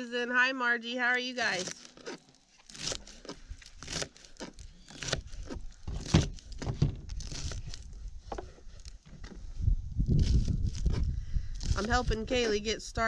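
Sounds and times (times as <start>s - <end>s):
crinkling: 1.3s - 9.4s.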